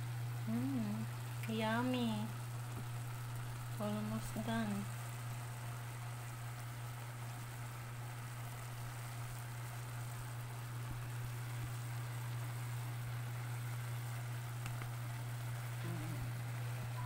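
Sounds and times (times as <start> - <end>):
vegetables sizzling in a pot: 0.0 - 17.0.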